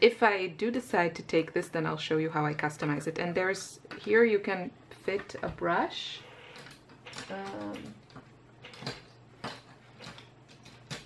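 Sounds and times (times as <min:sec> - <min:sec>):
small objects clicking on table: 0:06.5 - 0:11.0.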